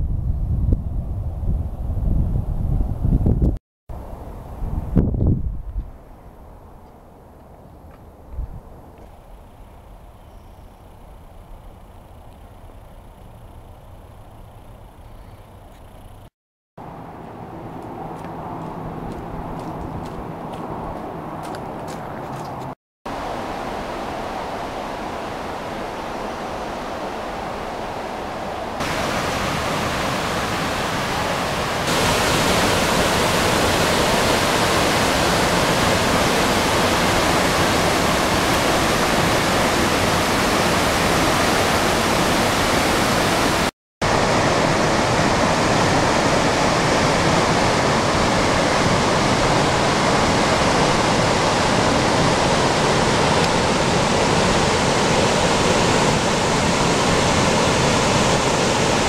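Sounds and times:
waterfall and rushing creek: 18.1 - 59.0.

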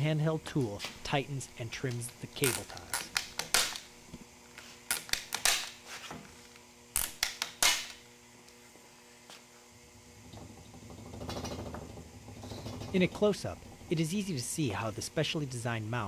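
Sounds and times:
cable tie tool clicking: 1.9 - 3.8.

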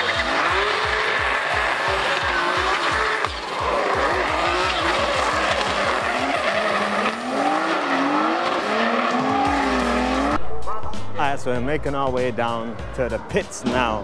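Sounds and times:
tyre squeal: 0.0 - 10.2
drift car engines revving: 0.0 - 10.4.

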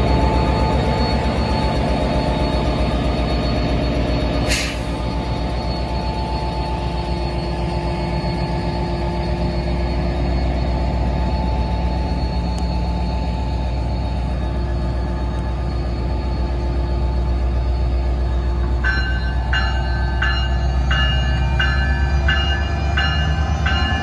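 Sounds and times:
diesel locomotive engine hum: 0.0 - 24.0
steady whine: 0.0 - 24.0.

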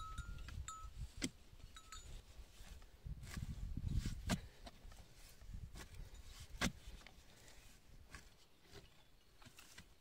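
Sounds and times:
hand tool digging dry soil: 0.0 - 10.0.

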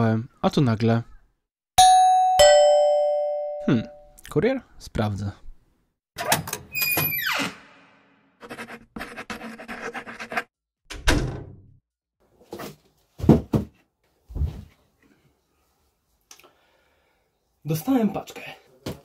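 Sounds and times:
knocks and heavy thuds: 13.2 - 14.7.

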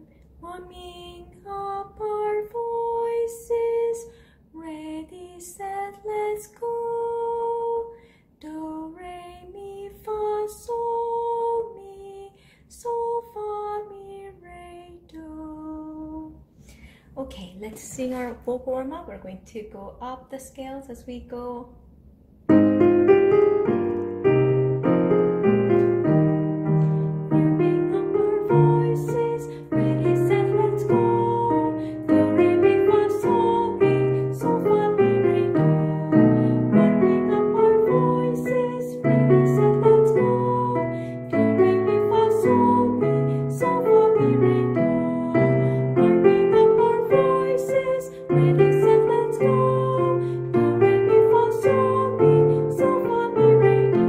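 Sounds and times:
piano accompaniment: 22.5 - 54.0.

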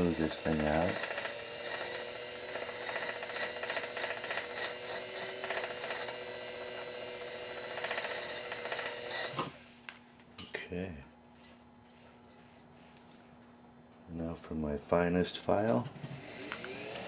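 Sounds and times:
stone rubbing on steel: 0.0 - 6.1
lathe motor humming: 0.0 - 9.4, 16.2 - 17.0.

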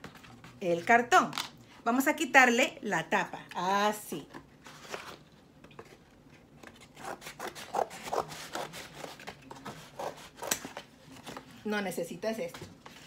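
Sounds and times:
scissors cutting cardboard: 6.8 - 10.8.

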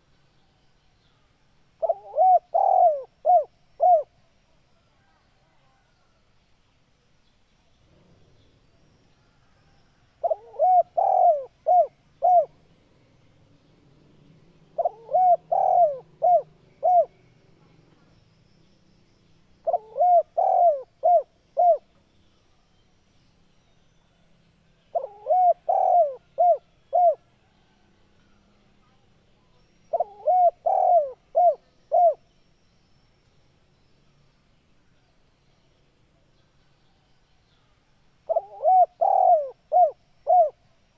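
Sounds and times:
dove cooing: 1.8 - 4.1, 10.2 - 12.6, 14.8 - 17.2, 19.6 - 21.9, 24.9 - 27.3, 29.9 - 32.2, 38.3 - 40.6.

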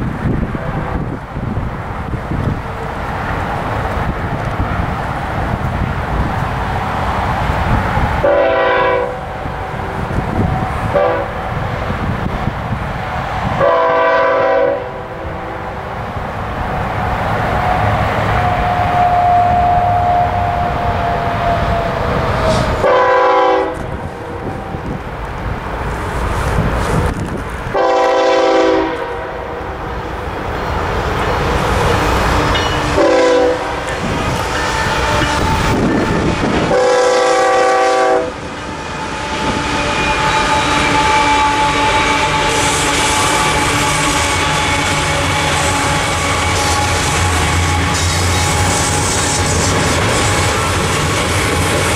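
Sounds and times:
low locomotive engine rumble: 0.0 - 51.9
train air horn blasts: 8.2 - 9.9, 10.8 - 11.4, 13.6 - 15.8, 18.4 - 21.2, 22.4 - 24.1, 27.7 - 29.6, 32.4 - 51.3.

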